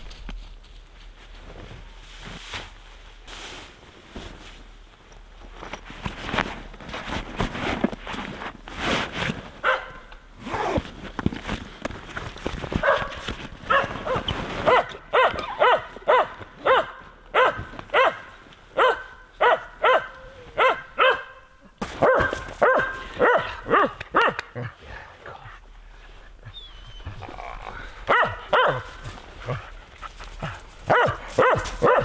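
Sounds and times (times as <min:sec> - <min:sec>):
backpack gear rustling: 0:03.3 - 0:16.6
dog barking and yelping: 0:09.6 - 0:10.0, 0:12.8 - 0:21.4, 0:22.0 - 0:24.6, 0:28.1 - 0:29.6, 0:30.4 - 0:32.0.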